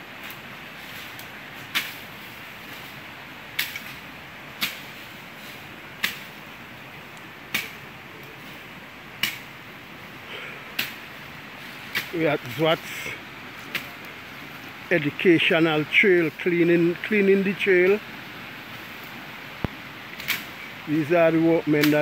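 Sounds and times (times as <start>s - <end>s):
background hiss: 0.0s - 22.0s
blades chopping grass and brush: 0.1s - 6.5s, 7.5s - 8.6s, 9.2s - 9.5s, 10.7s - 12.7s, 13.5s - 14.1s, 21.7s - 22.0s.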